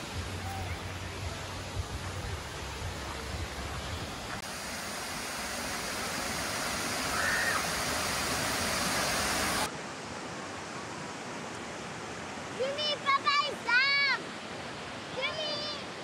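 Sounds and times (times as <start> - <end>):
waterfall roaring: 0.0 - 16.0.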